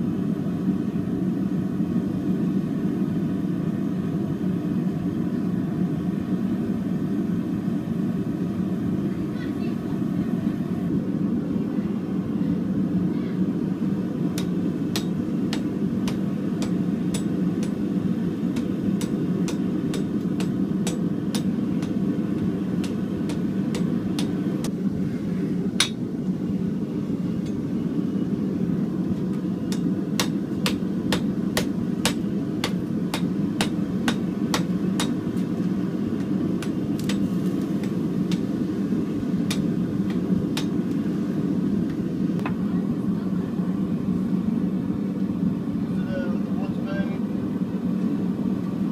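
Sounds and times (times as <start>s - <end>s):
gas forge burner roar: 0.0s - 48.9s
hammer striking metal on anvil: 14.4s - 17.8s, 18.6s - 24.4s, 25.8s - 26.0s, 29.7s - 35.2s, 36.2s - 38.5s, 39.5s - 40.8s.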